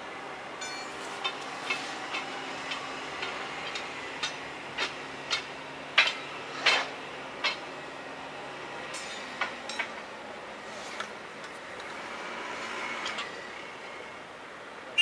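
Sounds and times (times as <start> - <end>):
locomotive engine humming: 0.0 - 15.0
sharp metallic knocks: 0.6 - 7.7, 8.9 - 10.0.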